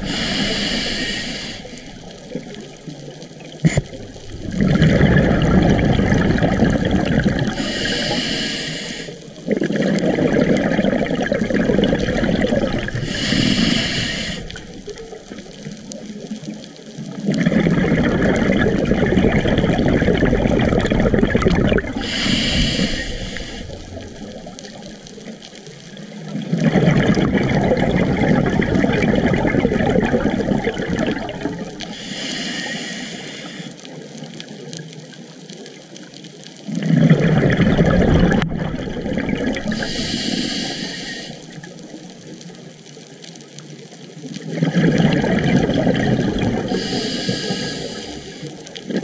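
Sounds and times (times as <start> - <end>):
regulator inhale hiss: 0.0 - 2.2, 7.5 - 9.3, 12.9 - 15.0, 22.0 - 24.3, 31.8 - 34.0, 39.7 - 41.7, 46.6 - 48.7
bubbling exhales underwater: 0.0 - 8.3, 9.3 - 15.7, 17.0 - 25.5, 26.1 - 33.0, 36.6 - 41.8, 44.4 - 49.0.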